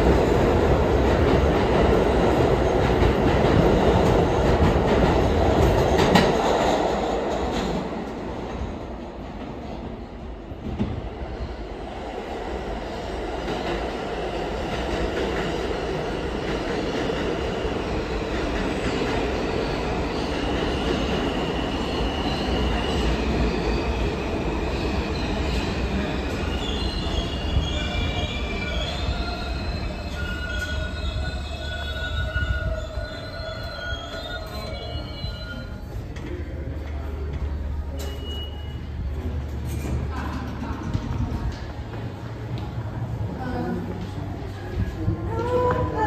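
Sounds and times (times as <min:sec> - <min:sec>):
subway train rumble: 0:00.0 - 0:46.0
train wheel squeal: 0:18.8 - 0:36.0, 0:37.9 - 0:39.0.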